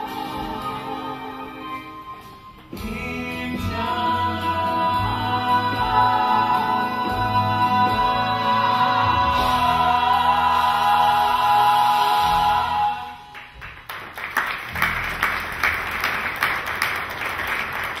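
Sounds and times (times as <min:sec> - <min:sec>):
audience applause: 0:13.3 - 0:18.0.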